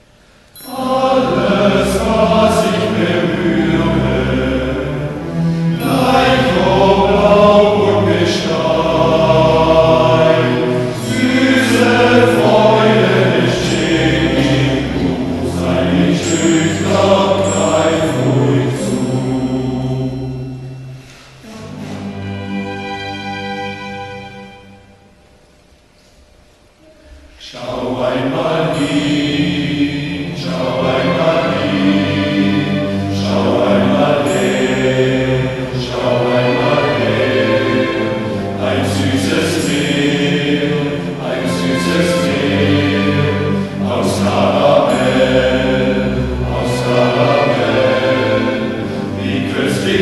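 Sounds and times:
choir singing with instruments: 0:00.0 - 0:25.7, 0:26.7 - 0:50.0.

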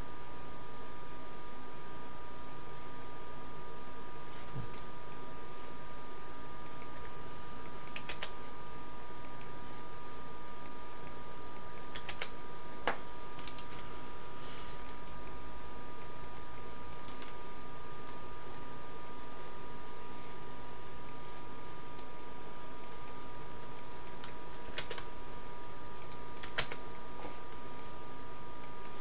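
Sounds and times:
faint high-pitched hum: 0:00.0 - 0:29.0
mouse clicks: 0:06.6 - 0:08.4, 0:10.6 - 0:12.4, 0:22.8 - 0:26.9
computer keyboard keystrokes: 0:07.7 - 0:08.4, 0:11.8 - 0:12.4, 0:13.4 - 0:13.8, 0:16.1 - 0:17.4, 0:22.8 - 0:25.1, 0:26.0 - 0:26.8.

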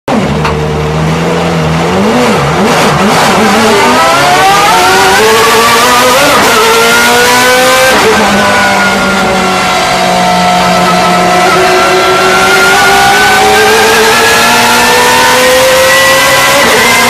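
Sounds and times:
race car engine accelerating: 0:00.1 - 0:17.0.

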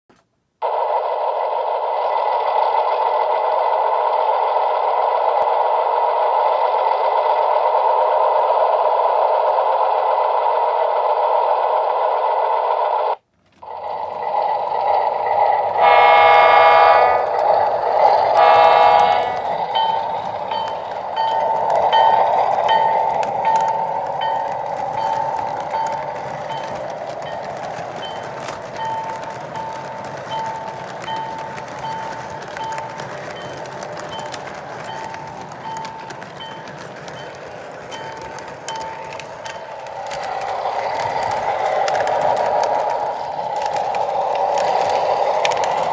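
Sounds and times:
clicking train wheels on track: 0:00.1 - 0:45.9
model train diesel engine running: 0:00.1 - 0:45.9
train horn blasts: 0:15.8 - 0:17.4, 0:18.3 - 0:19.6.

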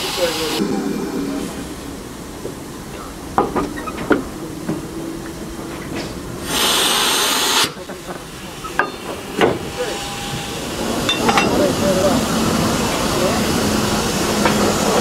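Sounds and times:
high hiss of released steam: 0:00.0 - 0:03.3, 0:06.4 - 0:08.8.

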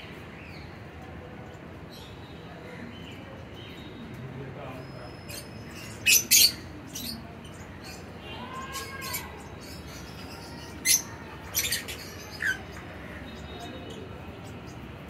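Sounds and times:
lovebirds chirping squawks: 0:04.8 - 0:14.9.

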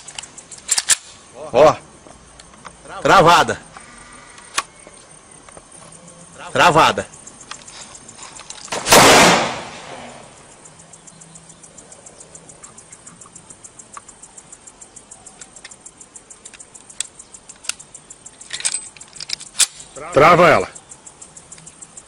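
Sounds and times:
pistol shot: 0:08.7 - 0:10.2
faint rapid ticking: 0:10.3 - 0:22.0.

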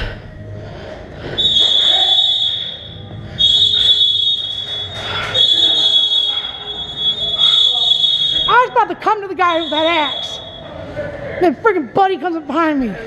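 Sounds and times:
alarm buzzer beeping: 0:01.4 - 0:08.7, 0:09.4 - 0:10.7.

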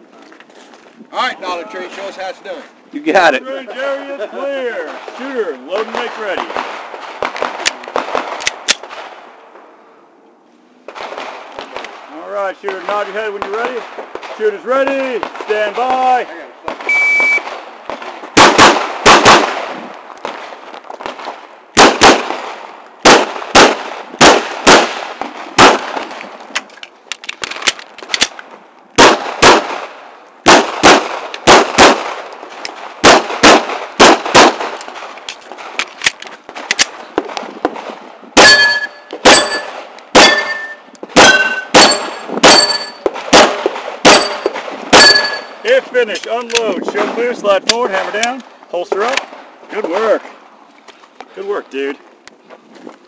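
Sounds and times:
pistol shots in quick pairs: 0:16.7 - 0:26.3, 0:29.0 - 0:35.8, 0:36.5 - 0:45.6
bullets ringing on steel targets: 0:38.4 - 0:45.6.

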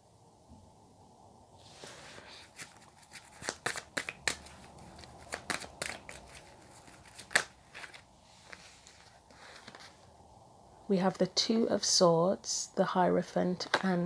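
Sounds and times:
cards being shuffled: 0:02.4 - 0:10.0
sharp card snap: 0:03.4 - 0:04.5.

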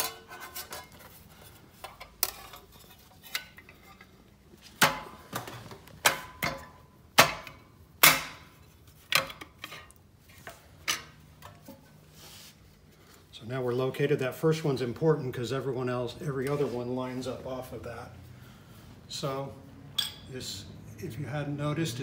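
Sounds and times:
metal clanks and knocks: 0:00.0 - 0:09.9.

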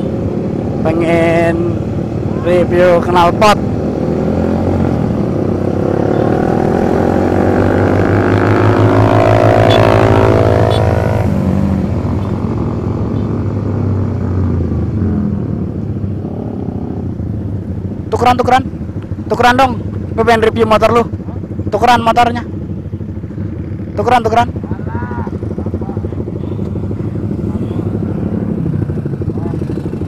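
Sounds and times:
motorcycle engine accelerating: 0:00.0 - 0:18.2, 0:22.6 - 0:30.0.

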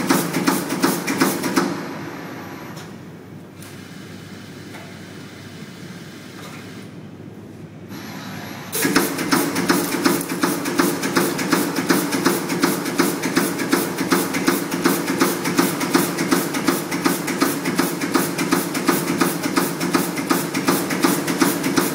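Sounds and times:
steady machine drone: 0:01.0 - 0:02.8, 0:07.9 - 0:19.3
rapid mechanical clatter: 0:08.8 - 0:21.9.

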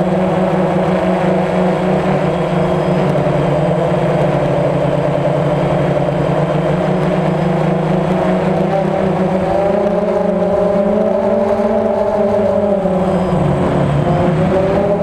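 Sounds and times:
drone propellers humming: 0:00.0 - 0:15.0.

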